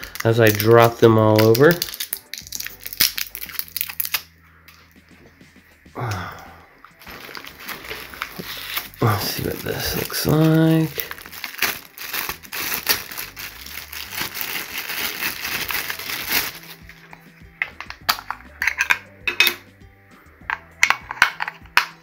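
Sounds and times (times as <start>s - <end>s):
plastic bag crinkling: 0.0s - 4.2s, 7.0s - 16.8s.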